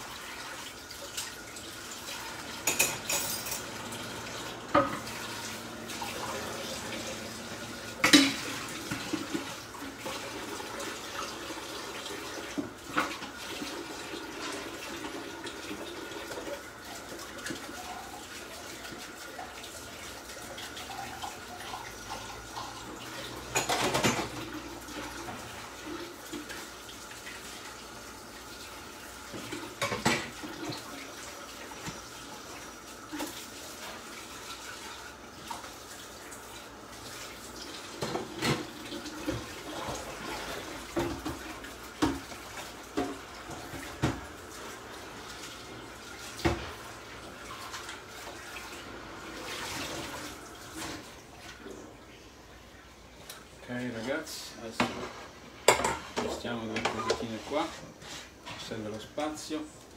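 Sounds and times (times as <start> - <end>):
running water in kitchen: 0.0 - 59.9.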